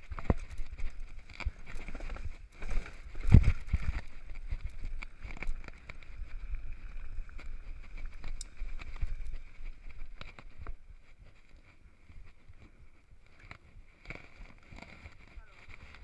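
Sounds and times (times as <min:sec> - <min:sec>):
bike chain and frame rattling: 0:00.0 - 0:12.7
bike tyres rumbling on dirt: 0:00.0 - 0:16.0.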